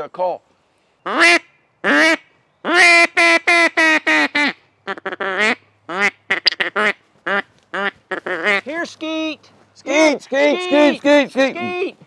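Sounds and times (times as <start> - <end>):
duck call quacks: 1.1 - 8.7, 10.4 - 12.0.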